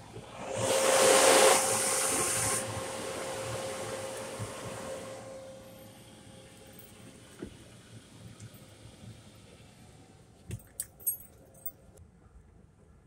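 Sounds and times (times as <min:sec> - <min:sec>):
car wash spray hissing: 0:00.0 - 0:06.2
steady hum: 0:00.0 - 0:10.4.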